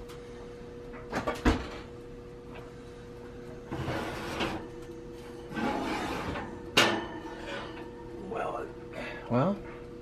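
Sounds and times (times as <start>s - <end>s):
faint steady hum: 0.0s - 10.0s
oven rack sliding rattle: 5.4s - 7.8s.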